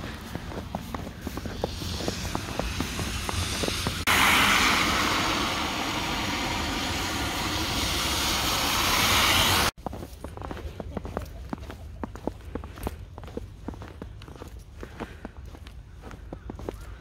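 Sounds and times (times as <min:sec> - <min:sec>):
boots crunching through snow: 0:00.0 - 0:04.1, 0:09.8 - 0:17.0
steady rushing hiss: 0:00.0 - 0:09.8.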